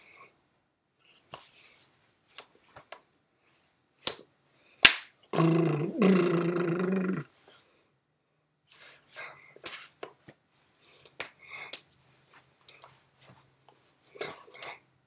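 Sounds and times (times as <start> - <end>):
hands smacking palms and chest: 4.0 - 5.2, 9.6 - 10.4, 11.0 - 11.9
man's wordless drawn-out vocal: 5.4 - 7.3.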